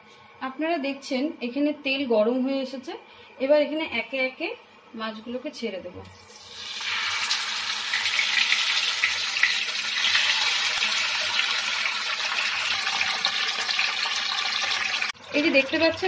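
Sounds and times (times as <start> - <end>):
fish sizzling in hot oil: 6.2 - 16.0.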